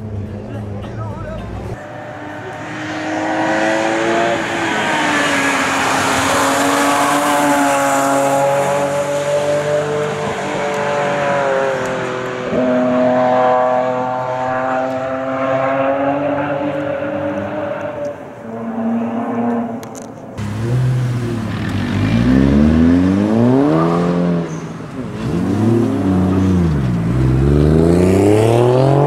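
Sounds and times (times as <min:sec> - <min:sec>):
car engine at full throttle: 0:00.0 - 0:29.0.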